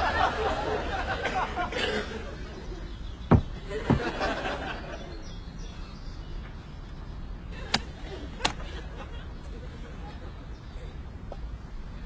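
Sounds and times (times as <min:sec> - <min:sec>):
studio audience laughter: 0:00.0 - 0:02.4, 0:03.8 - 0:05.2
heavy thumps: 0:03.3 - 0:04.2.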